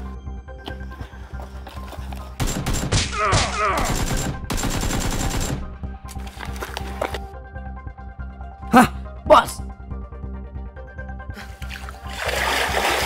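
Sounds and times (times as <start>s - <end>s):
background music: 0.0s - 13.0s
rapid gunfire bursts: 2.4s - 3.1s, 3.7s - 5.7s.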